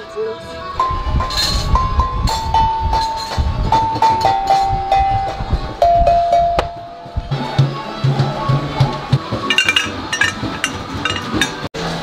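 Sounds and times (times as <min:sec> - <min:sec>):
low-pitched drum beats: 0:01.0 - 0:11.7
cowbells struck with stick: 0:01.2 - 0:07.2, 0:09.4 - 0:11.6.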